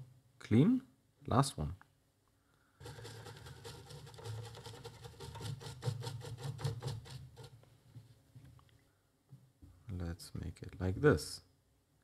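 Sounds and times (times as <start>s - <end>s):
scratchy rubbing on circuit board: 2.8s - 7.6s.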